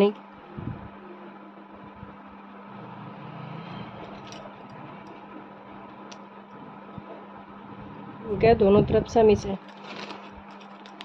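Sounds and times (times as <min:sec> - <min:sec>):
low background hum: 0:00.0 - 0:11.0
faint handling noise: 0:09.6 - 0:11.0.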